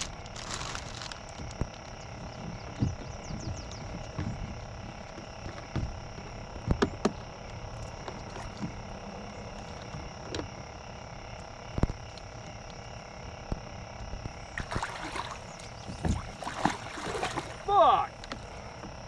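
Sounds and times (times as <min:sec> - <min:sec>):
riverbank background: 0:00.0 - 0:19.0
water splashing: 0:14.5 - 0:18.1.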